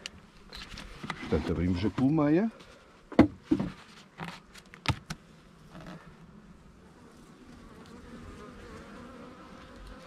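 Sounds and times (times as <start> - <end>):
knocks on wooden hive cover: 3.1 - 3.8
honeybees buzzing: 4.0 - 10.0.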